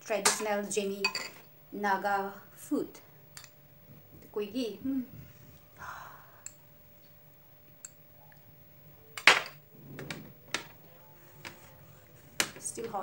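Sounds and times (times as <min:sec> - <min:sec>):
tableware clinking: 0:00.2 - 0:01.4, 0:09.2 - 0:09.6.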